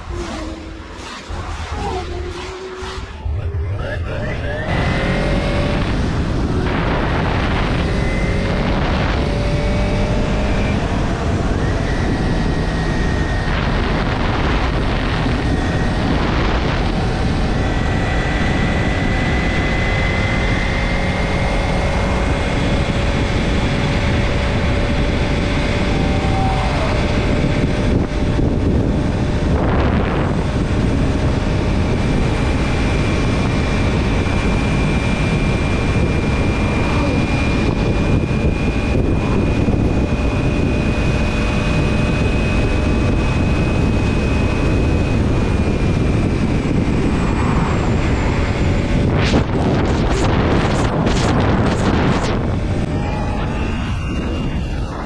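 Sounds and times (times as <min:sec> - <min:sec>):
motorcycle engine whine: 0:00.0 - 0:55.0
wind rushing over microphone: 0:00.0 - 0:55.0.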